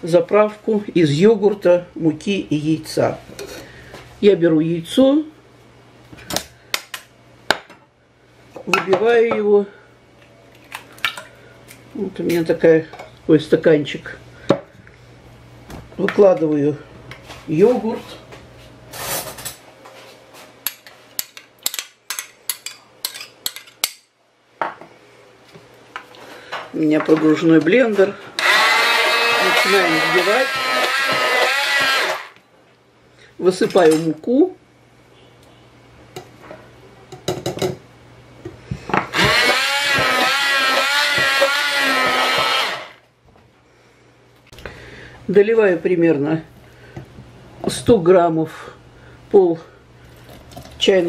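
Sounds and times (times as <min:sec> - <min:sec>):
immersion blender motor whining: 0:28.4 - 0:32.4, 0:39.1 - 0:43.0.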